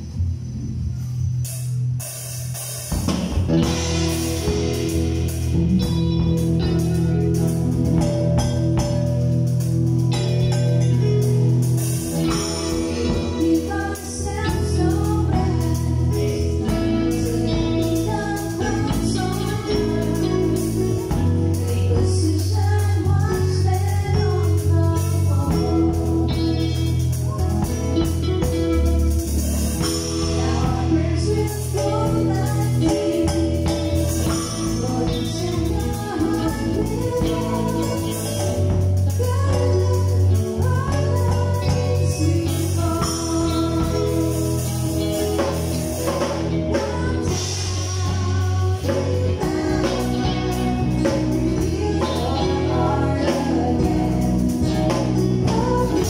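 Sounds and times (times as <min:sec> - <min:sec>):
live band with drums and guitars: 0:00.0 - 0:56.0
singing: 0:29.4 - 0:56.0.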